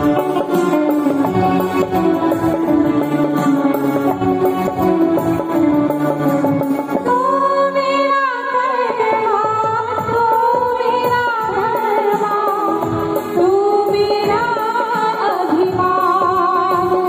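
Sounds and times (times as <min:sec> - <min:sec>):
percussion strikes: 0:00.0 - 0:07.4
harmonium chords: 0:00.0 - 0:17.0.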